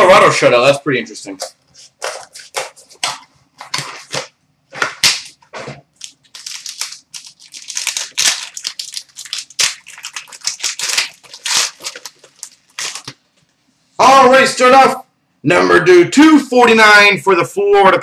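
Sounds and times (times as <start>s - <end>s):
plastic wrapping crinkling and tearing: 1.8s - 4.3s, 5.0s - 13.4s.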